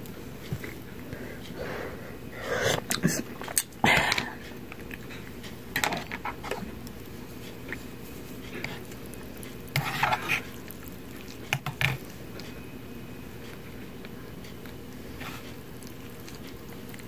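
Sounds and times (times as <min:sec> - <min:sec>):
plastic spork scraping a bowl: 0:09.7 - 0:10.5.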